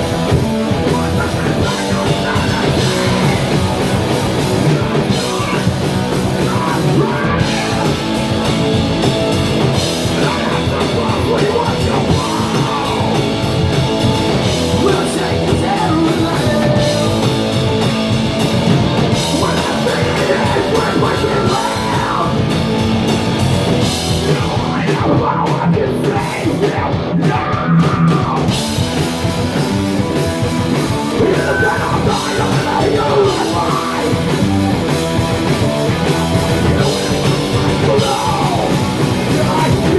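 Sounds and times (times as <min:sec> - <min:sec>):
bass guitar: 0:00.0 - 0:39.9
drum kit: 0:00.0 - 0:39.9
electric guitars: 0:00.0 - 0:39.9
person singing into a microphone: 0:00.8 - 0:08.4, 0:10.0 - 0:13.3, 0:14.7 - 0:17.4, 0:19.1 - 0:22.4, 0:24.2 - 0:28.6, 0:31.1 - 0:34.4, 0:36.6 - 0:39.9.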